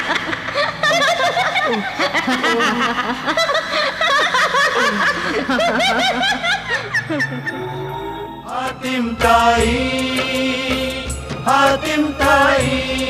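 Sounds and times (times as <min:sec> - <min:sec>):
women laughing: 0:00.0 - 0:07.8.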